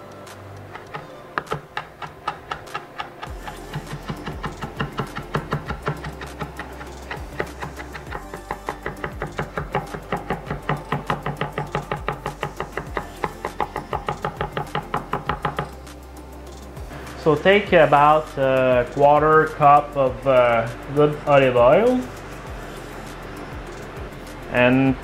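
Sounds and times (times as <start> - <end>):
knife chopping on wooden board: 0.8 - 15.8.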